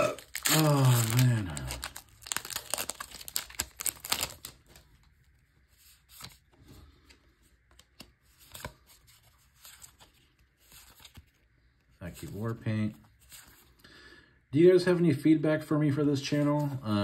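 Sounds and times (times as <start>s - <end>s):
card pack crinkling and tearing: 0.0s - 5.1s
cards sliding and shuffling: 5.7s - 11.4s.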